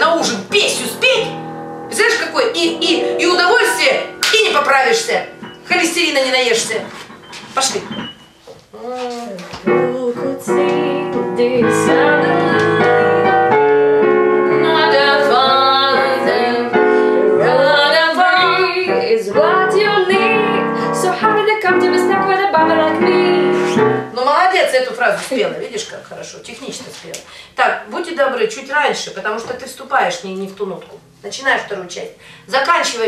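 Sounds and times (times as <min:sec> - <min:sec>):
piano accompaniment: 0:00.0 - 0:24.7
woman singing jazz: 0:01.9 - 0:07.0, 0:08.7 - 0:13.8, 0:14.5 - 0:24.5.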